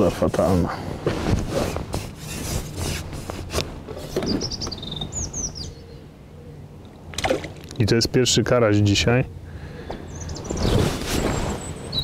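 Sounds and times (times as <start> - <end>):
rubbing and knocking of fishing pole: 1.1 - 4.4
small bird chirping: 4.0 - 6.0, 10.1 - 12.0.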